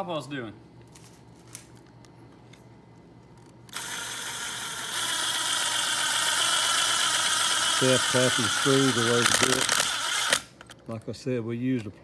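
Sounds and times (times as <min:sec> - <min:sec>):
cordless drill whirring: 0:03.7 - 0:10.5.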